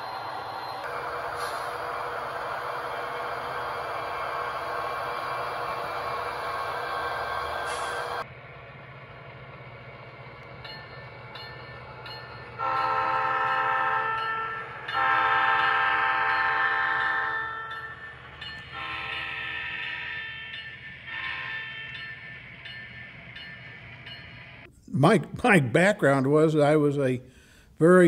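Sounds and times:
hiss: 0.0 - 8.2
model locomotive engine rumble: 0.0 - 24.7
locomotive horn blasts: 12.6 - 17.6, 18.7 - 20.0.

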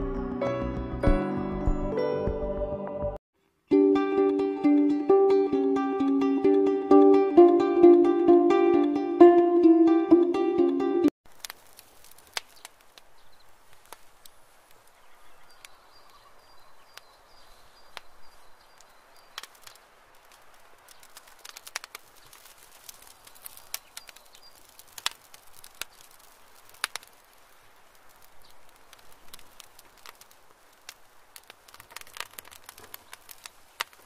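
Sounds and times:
rustling in dry leaves: 11.3 - 34.0.

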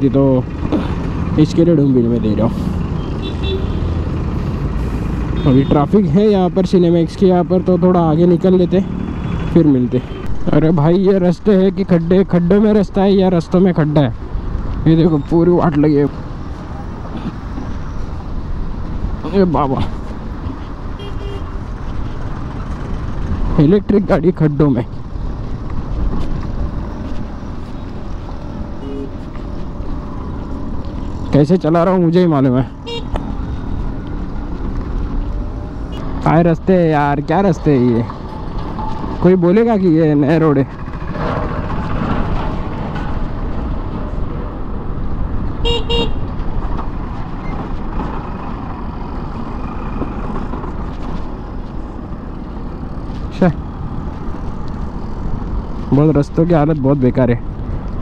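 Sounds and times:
scooter road noise: 0.0 - 58.0
vehicle horn beeps: 3.0 - 3.9, 5.4 - 5.8, 21.0 - 21.6, 28.8 - 29.1, 32.8 - 33.2, 45.6 - 46.3
wind rumble: 10.2 - 58.0.

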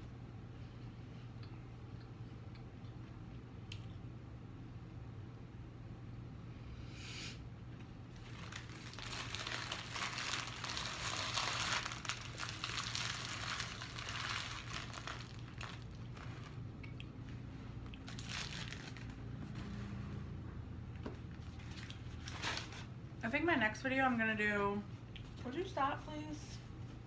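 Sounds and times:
paper wrapper crinkling: 8.1 - 16.7, 18.0 - 19.2, 21.4 - 22.9.

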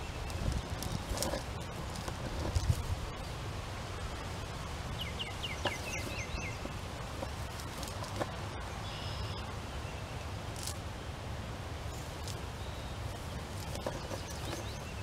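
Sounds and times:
songbird chirping: 4.0 - 10.8, 11.8 - 15.0.

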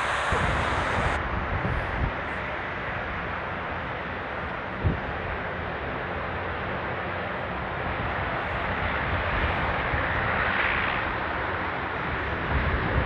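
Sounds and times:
turboprop engines rushing: 0.0 - 13.0.

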